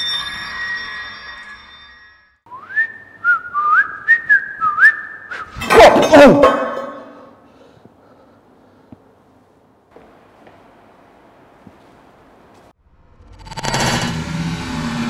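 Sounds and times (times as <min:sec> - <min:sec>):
ringing tones: 0:00.0 - 0:02.4
man whistling a tune: 0:02.5 - 0:05.6
footsteps on tile panels: 0:09.9 - 0:10.8
loud crash with falling tone: 0:13.0 - 0:15.0.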